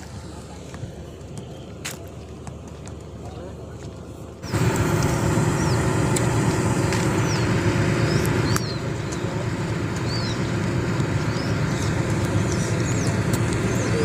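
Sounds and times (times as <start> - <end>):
birds chirping: 0.0 - 14.0
low rumble: 4.4 - 14.0.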